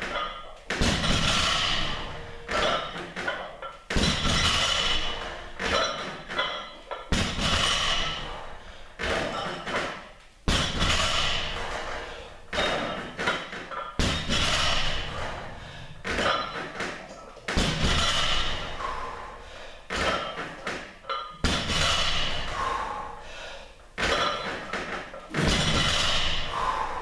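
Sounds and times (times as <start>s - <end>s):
metal plates rattling: 0.0s - 10.0s, 10.6s - 19.2s, 24.0s - 27.0s
barbell thumping on floor: 0.0s - 19.2s, 19.9s - 22.7s, 24.0s - 27.0s.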